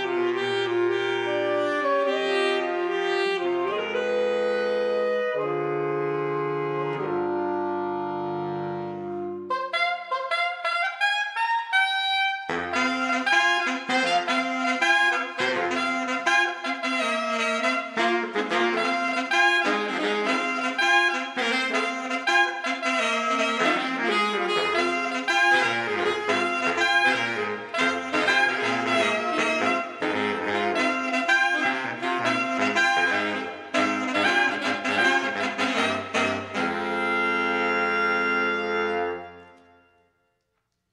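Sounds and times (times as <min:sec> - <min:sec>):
saxophone quartet jazz: 0:00.0 - 0:40.0.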